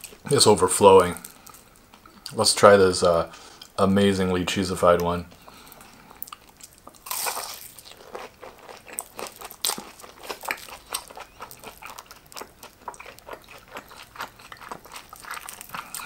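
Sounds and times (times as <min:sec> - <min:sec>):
chewing crispy fried cutlet: 0:05.4 - 0:16.0.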